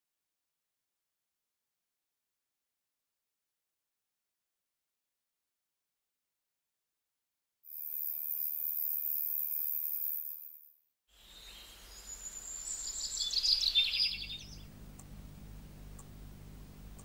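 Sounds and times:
high insect trill: 7.7s - 14.5s
faint indoor hum: 11.2s - 17.0s
birds chirping: 11.3s - 17.0s.

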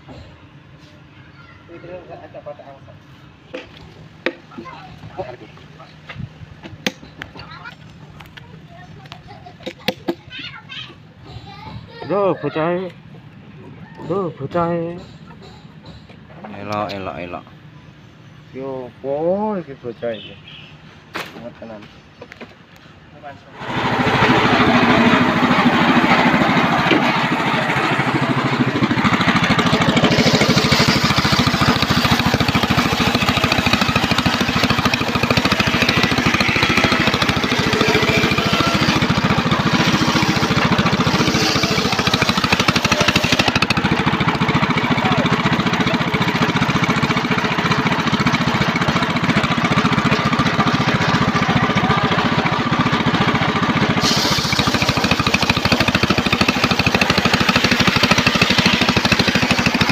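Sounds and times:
circular saw ripping a log: 30.0s - 43.9s, 54.0s - 59.9s.

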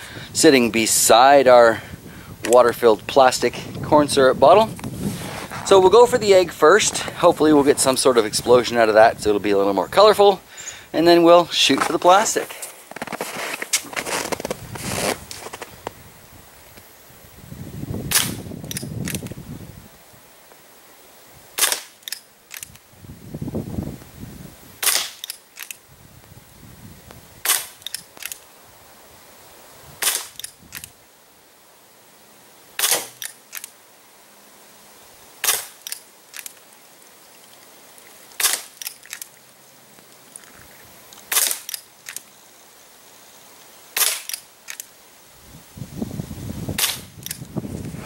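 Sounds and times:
pellet revolver shots: 24.8s - 25.3s.

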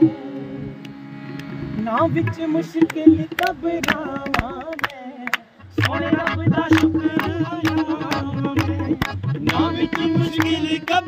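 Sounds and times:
sustained accompaniment tone: 0.0s - 3.4s
low rhythmic beat: 0.0s - 11.0s
hand claps keeping time: 0.8s - 1.6s, 2.2s - 11.0s
man singing a hymn: 1.8s - 11.0s.

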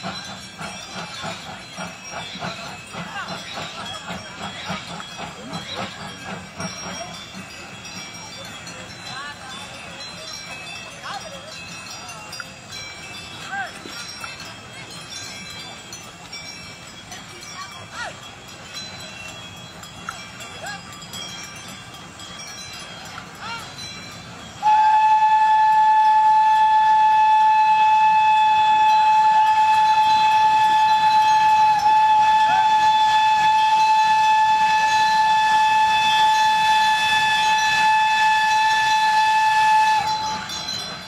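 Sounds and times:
steam locomotive whistle blowing: 23.4s - 41.0s.

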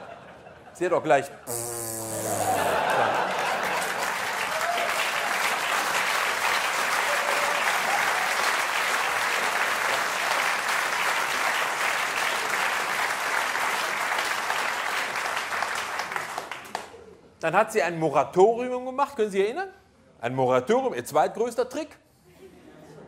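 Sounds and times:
audience applause: 2.2s - 16.9s.

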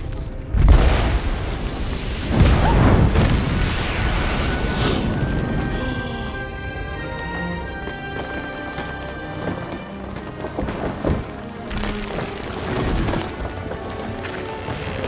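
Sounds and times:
film score music: 0.0s - 15.0s
explosion booms: 0.6s - 5.2s.

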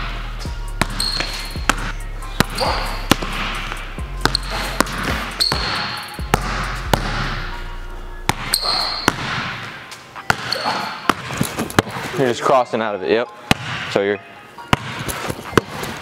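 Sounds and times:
sneakers squeaking: 0.3s - 7.7s, 8.3s - 12.4s, 13.4s - 16.0s
basketball bouncing on wood floor: 0.8s - 7.4s, 8.3s - 9.6s, 10.3s - 12.0s, 14.7s - 15.0s.

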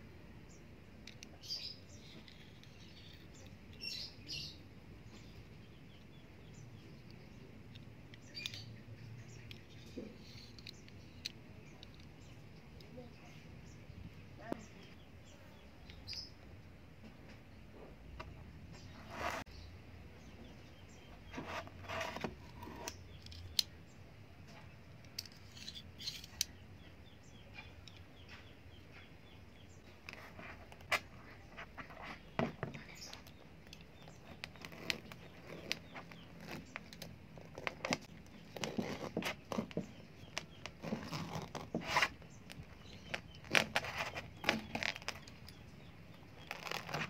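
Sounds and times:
knife crunching and scraping husk: 33.0s - 45.6s, 46.2s - 47.0s.

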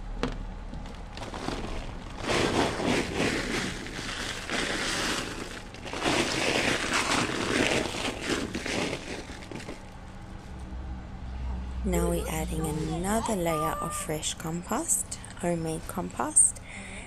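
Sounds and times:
compost pouring onto cardboard: 1.1s - 9.9s.

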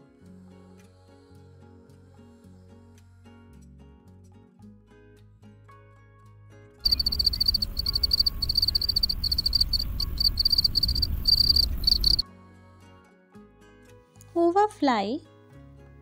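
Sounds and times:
cricket chirping: 6.8s - 12.2s.

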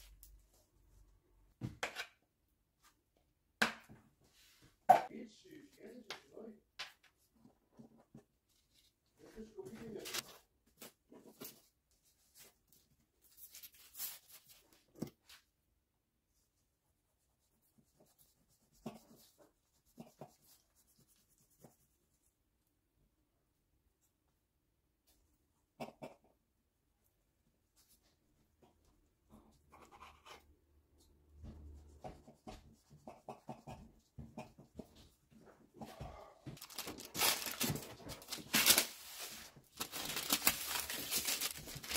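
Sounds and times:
baking paper rustling: 9.6s - 10.4s, 13.2s - 14.9s, 36.6s - 41.9s.

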